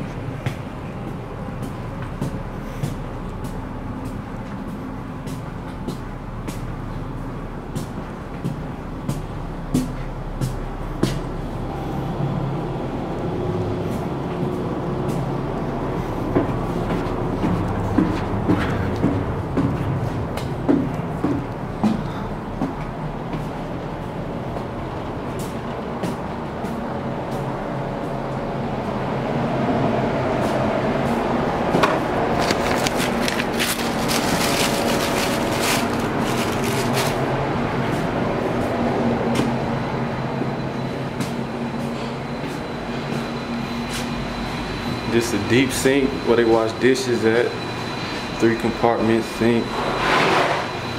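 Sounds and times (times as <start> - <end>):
ship machinery hum: 0.0 - 50.9
low held tones: 9.4 - 18.4
footsteps on steel ladder: 16.3 - 24.7, 31.7 - 37.3.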